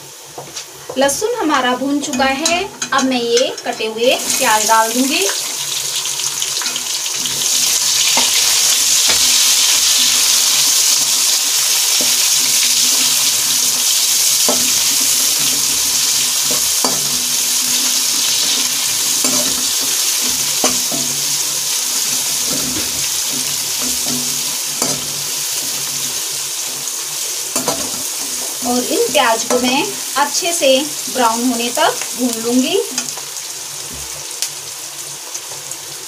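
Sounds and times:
onions sizzling in hot oil: 0.0 - 36.0
metal spatula scraping pan: 14.3 - 29.9.

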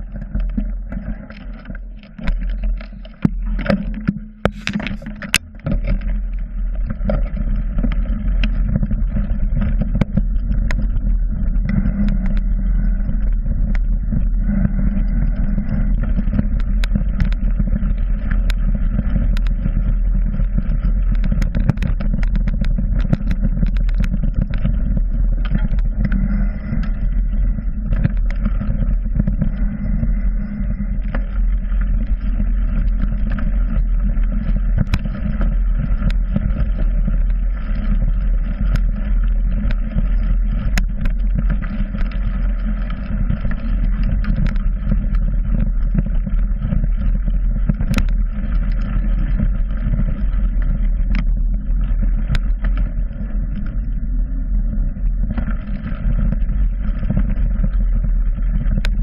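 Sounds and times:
wind and tyre rumble: 0.0 - 59.0
bike rattles and knocks: 2.3 - 5.9.

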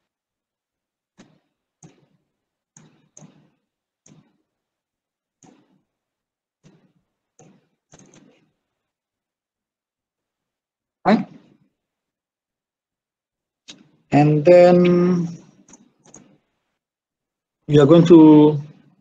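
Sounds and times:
computer mouse clicks: 1.2 - 4.4, 5.4 - 5.8, 6.6 - 8.5, 15.6 - 16.5.

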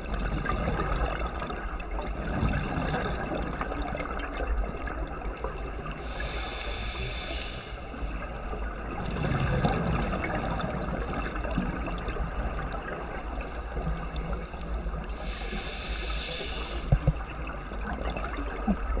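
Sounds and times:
gurgle of exhaled bubbles: 0.0 - 6.4, 8.2 - 13.2, 13.8 - 19.0
underwater water noise: 0.0 - 19.0
hissing regulator inhalations: 5.8 - 8.7, 12.9 - 17.2.

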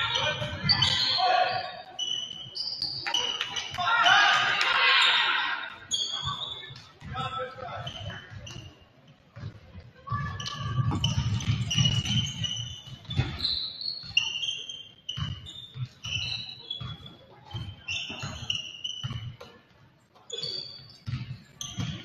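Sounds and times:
sneakers squeaking on gym floor: 0.0 - 22.0
voices in a hall: 0.0 - 22.0
basketball bouncing: 6.7 - 8.7, 9.4 - 14.3, 15.1 - 19.5, 21.0 - 22.0.

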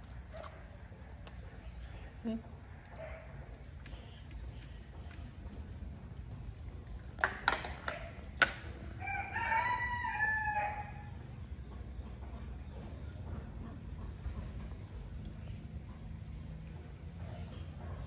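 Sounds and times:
rooster crowing: 9.0 - 11.1.

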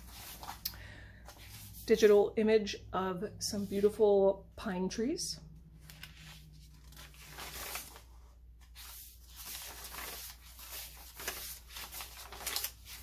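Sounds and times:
paper pages rustling: 0.0 - 0.6, 1.2 - 2.2, 5.8 - 13.0.

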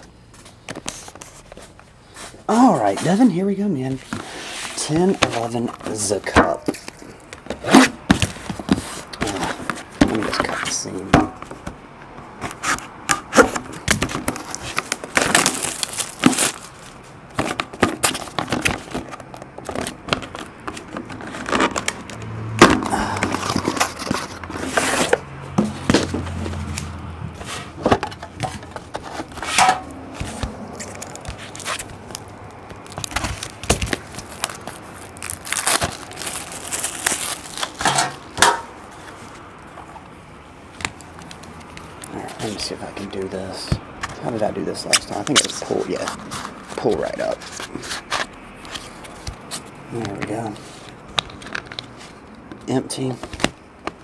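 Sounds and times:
shrink wrap crinkling: 13.7 - 22.2, 30.3 - 39.7, 40.8 - 52.2.

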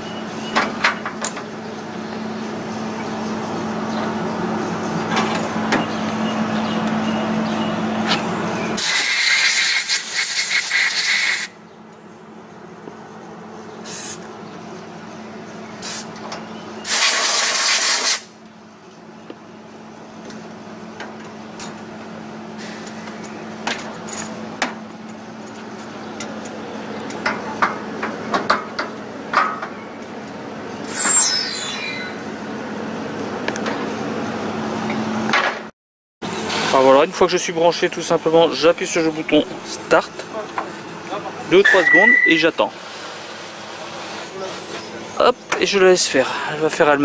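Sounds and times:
gas hissing out hard: 8.8 - 11.5, 13.8 - 14.2, 16.8 - 18.3.

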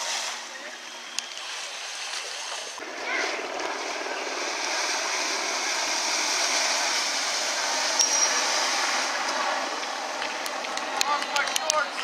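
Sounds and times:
rushing water and spray: 0.0 - 0.6, 1.3 - 12.0.

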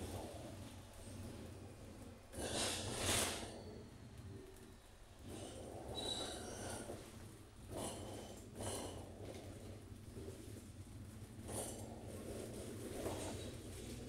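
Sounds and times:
bus engine rumbling: 0.0 - 14.0
exhaust puffing and rasping: 0.0 - 14.0.

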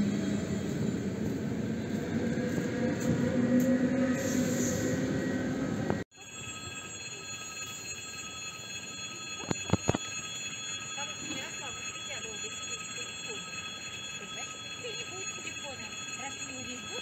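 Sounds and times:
electric train humming: 0.0 - 17.0
level crossing warning tones: 3.4 - 17.0.

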